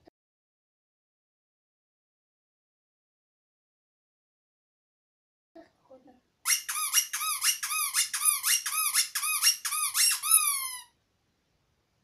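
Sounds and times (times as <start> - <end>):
rubber toy squeaking: 6.5 - 11.0.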